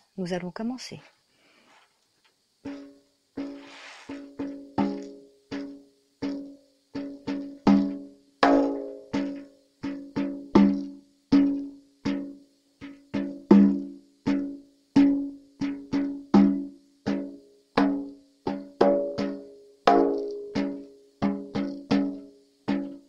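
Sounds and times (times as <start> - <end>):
ocean drum struck with beater: 5.6 - 23.0.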